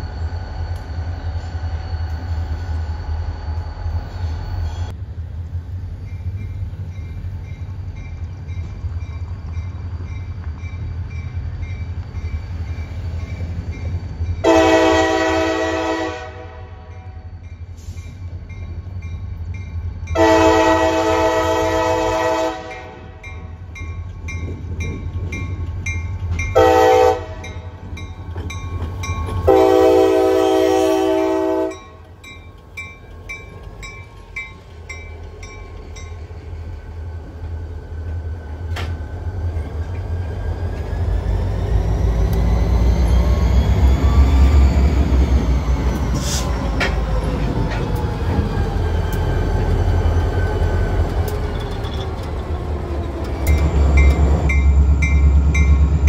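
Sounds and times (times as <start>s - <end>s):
locomotive horn blasts: 14.4s - 17.1s, 20.2s - 23.3s, 26.5s - 27.7s, 29.4s - 32.0s
wheels clicking on rail joints: 27.2s - 29.6s, 30.8s - 56.0s.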